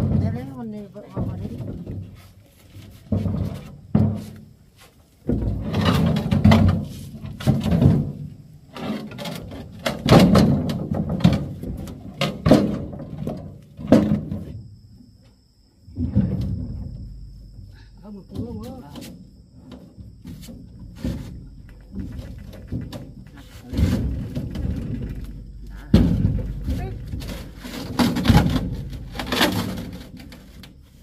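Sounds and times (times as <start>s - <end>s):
clattering knocks: 5.2s - 14.5s, 19.7s - 30.8s
heavy thuds: 15.8s - 31.0s.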